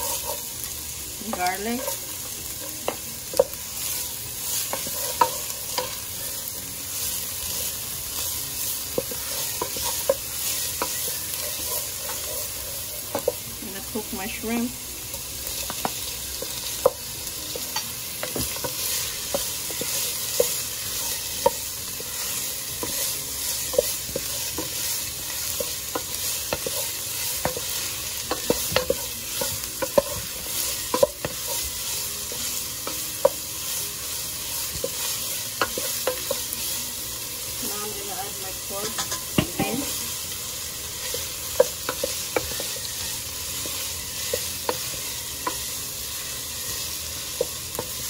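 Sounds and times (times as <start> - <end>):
food sizzling in hot oil: 0.0 - 48.0
spatula knocking and scraping pan: 4.6 - 6.0, 8.9 - 14.5, 15.5 - 33.5, 34.6 - 36.6, 38.7 - 40.0, 41.0 - 45.7.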